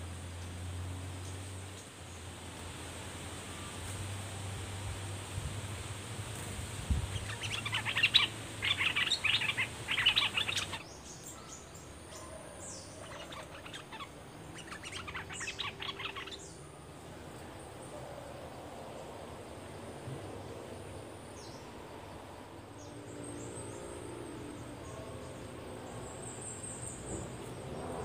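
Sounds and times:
birds chattering: 7.1s - 16.6s
thin high-pitched bird calls: 7.1s - 16.7s.

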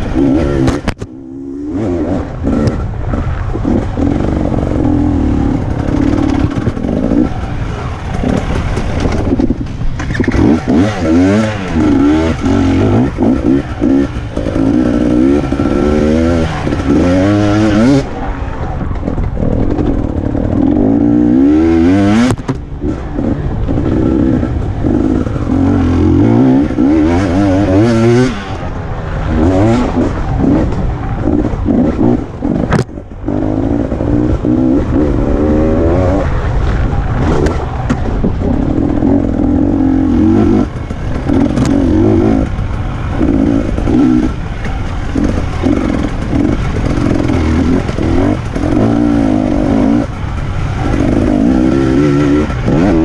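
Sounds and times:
motorcycle engine revving: 0.0s - 53.0s.

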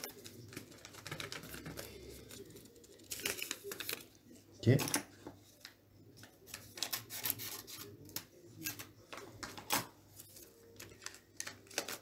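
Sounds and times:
paper packet rustling: 0.0s - 4.4s, 5.5s - 12.0s
scissors snipping paper: 9.7s - 12.0s.

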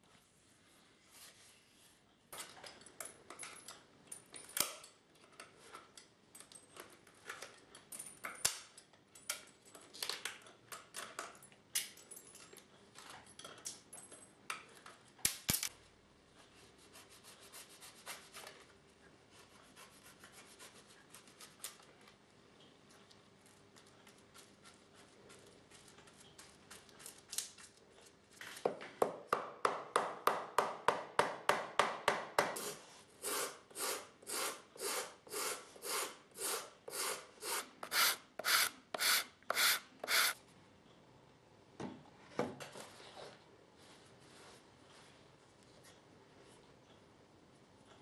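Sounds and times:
pliers rubbing and clicking on leather: 37.6s - 40.4s
brush scratching over leather: 37.9s - 40.4s.

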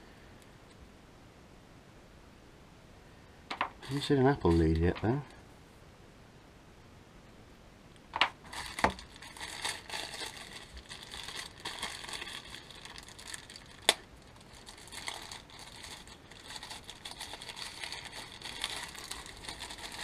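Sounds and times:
paper packaging crinkling: 3.8s - 5.2s, 8.3s - 20.0s.

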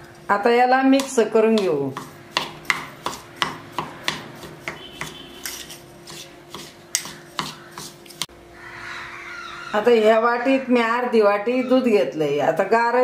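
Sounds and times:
spoon scraping a steel bowl: 4.6s - 8.3s.

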